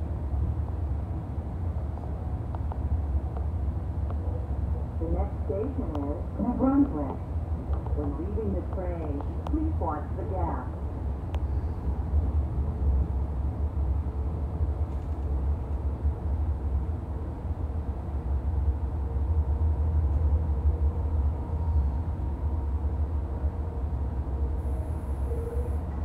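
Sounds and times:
train coach rumbling on track: 0.0 - 26.0.

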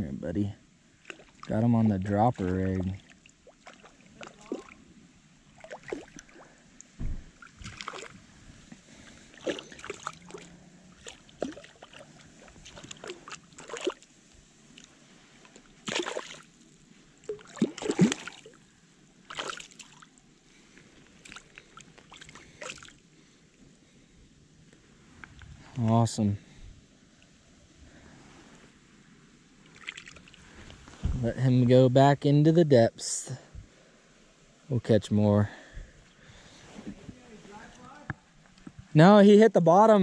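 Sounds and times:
fish thrashing in water: 5.6 - 6.5, 7.4 - 8.2, 9.3 - 14.0, 15.5 - 16.6, 17.2 - 18.6, 19.3 - 20.1
low thump: 7.0 - 7.4, 31.0 - 31.2.

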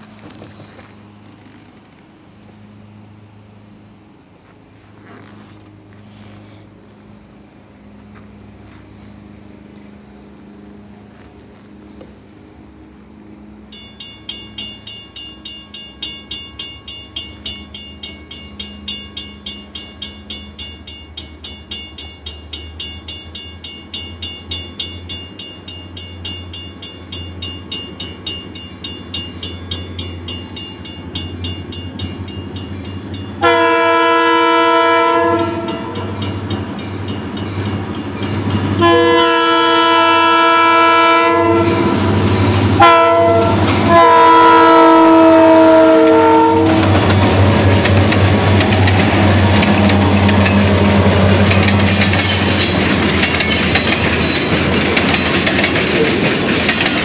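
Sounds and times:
diesel locomotive engine hum: 0.0 - 57.0
crossing bell ringing: 13.6 - 57.0
locomotive horn blast: 33.4 - 36.3, 38.8 - 47.0.

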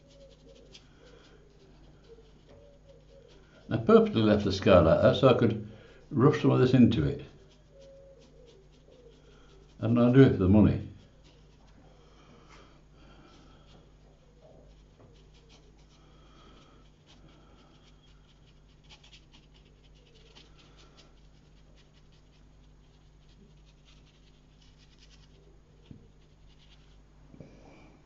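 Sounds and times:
brush ticking on paper: 0.0 - 11.8, 13.6 - 27.0
low electrical hum: 0.0 - 28.0
soft breathing: 0.1 - 2.4, 5.6 - 6.2, 7.3 - 9.8, 11.0 - 18.9, 27.3 - 28.0.

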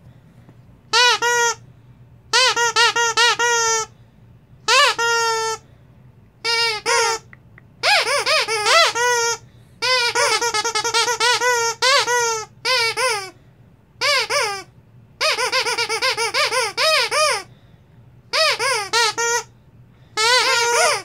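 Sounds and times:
dog toy squeaking: 0.9 - 1.6, 2.3 - 3.9, 4.7 - 5.6, 6.4 - 13.4, 14.0 - 17.5, 18.3 - 19.5, 20.2 - 21.0.

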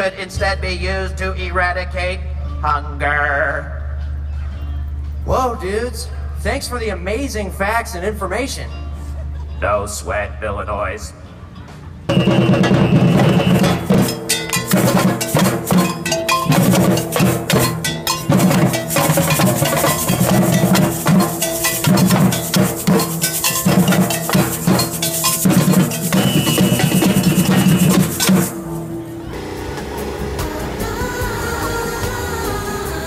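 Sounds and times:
cowbell ringing: 12.1 - 28.7
bass drums and hand drums: 12.1 - 33.0.

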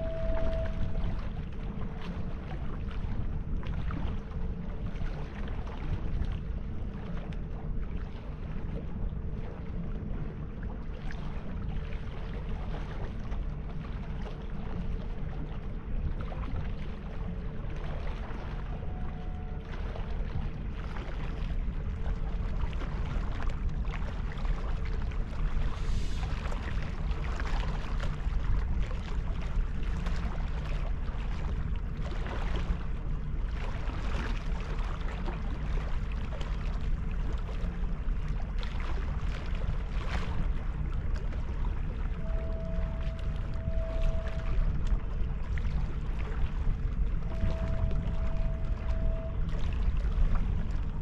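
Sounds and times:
wind rumbling on microphone: 0.0 - 51.0.

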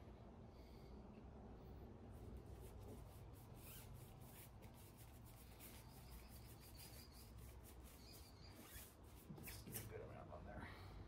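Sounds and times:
low steady hum: 0.0 - 11.0
brush rubbing strokes: 2.1 - 10.1.

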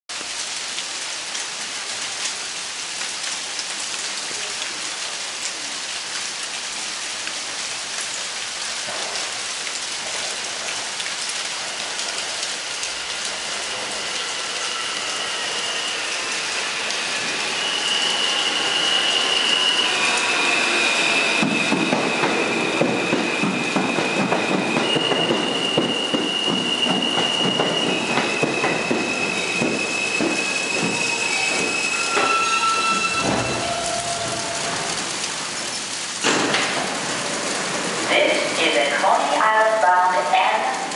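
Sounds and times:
steady rain falling: 0.1 - 40.9
subway train approaching: 7.1 - 40.9
high whine of train: 10.0 - 40.9.

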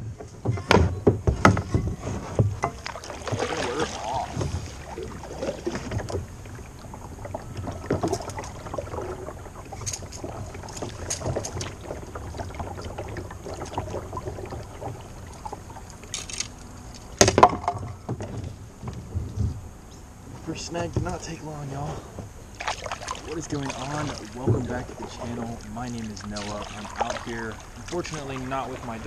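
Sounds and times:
paddle splashing water: 0.0 - 19.2, 20.4 - 29.0
knocks against kayak: 0.2 - 4.7, 17.2 - 19.6.

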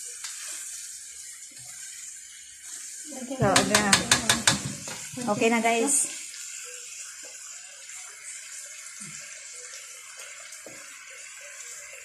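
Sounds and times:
food sizzling in a wok: 0.0 - 12.0
faint stirring knocks: 3.4 - 5.6.

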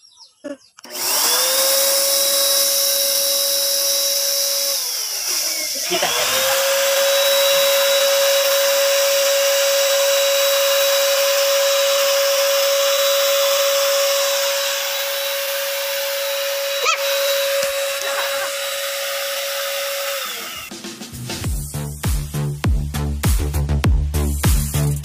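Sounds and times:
spray gun motor whine: 0.8 - 20.7.

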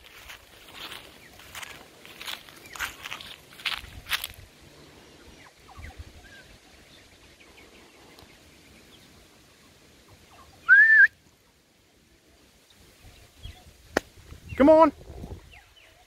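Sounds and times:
faint bird chirps: 5.2 - 11.2
loud rising whistle: 10.7 - 11.1.

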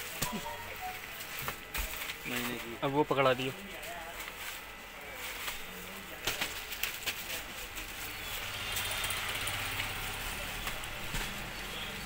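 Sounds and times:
paper and plastic rustling: 0.0 - 8.8.

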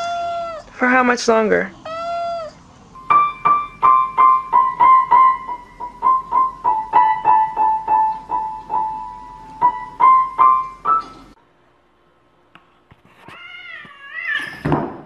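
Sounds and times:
single piano notes: 3.0 - 11.4.

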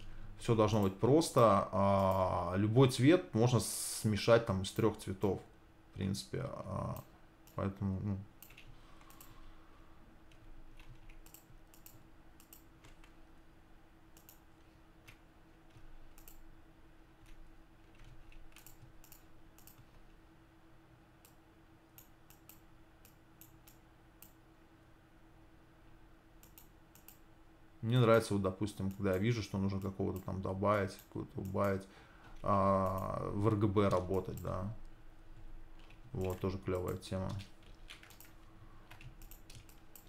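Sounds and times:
low steady hum: 0.0 - 40.0
computer mouse and keyboard clicks: 8.4 - 9.4, 10.3 - 13.2, 14.2 - 14.4, 15.0 - 16.4, 17.2 - 20.1, 26.4 - 27.2, 35.8 - 40.0.

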